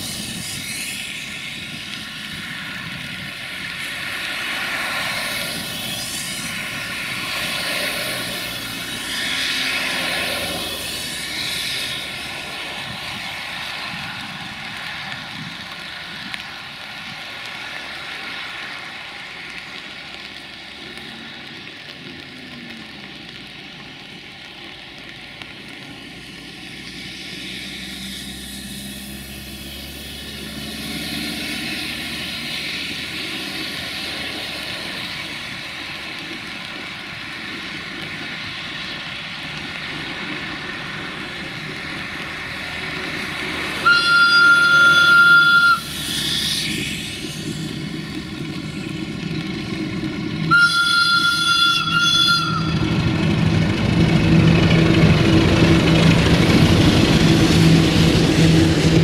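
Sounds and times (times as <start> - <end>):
turbocharger whistling whine: 0.0 - 14.5, 26.9 - 34.5, 43.7 - 59.0
locomotive diesel engine drone: 0.0 - 59.0.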